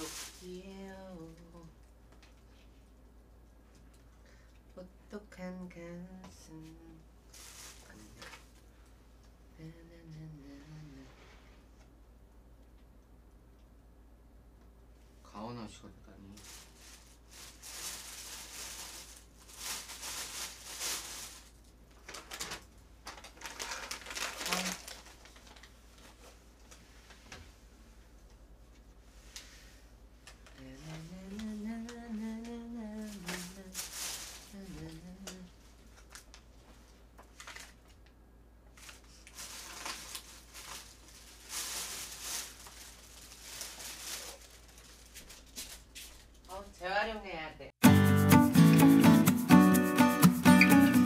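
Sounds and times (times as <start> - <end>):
plastic packaging rustling: 0.0 - 1.3, 7.3 - 8.7, 16.2 - 27.4, 30.2 - 38.1, 38.7 - 46.6
woman humming: 9.5 - 11.1, 34.5 - 35.5.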